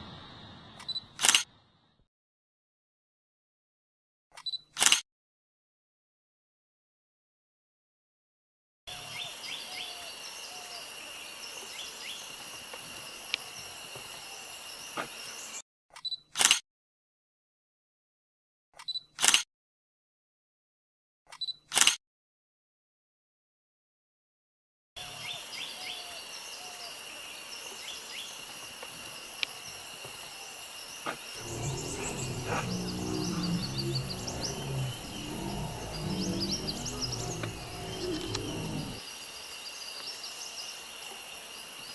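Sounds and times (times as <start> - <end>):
high insect drone: 25.5 - 41.8
high-pitched insect drone: 31.4 - 39.0
low bird call notes: 31.4 - 39.0.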